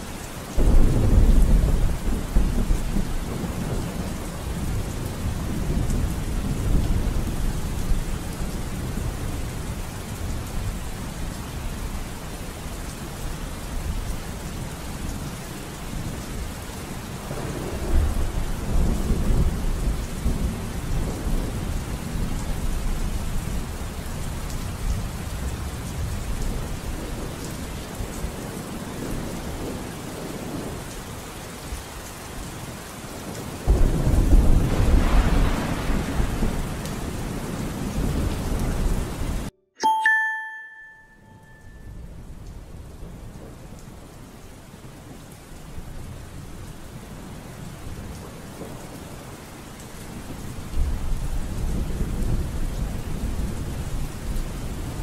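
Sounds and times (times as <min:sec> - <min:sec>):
steady rain: 0:00.0 - 0:39.5, 0:41.5 - 0:55.0
low rolling thunder: 0:00.5 - 0:10.8, 0:17.2 - 0:30.9, 0:33.3 - 0:39.5, 0:42.0 - 0:44.2, 0:50.1 - 0:55.0.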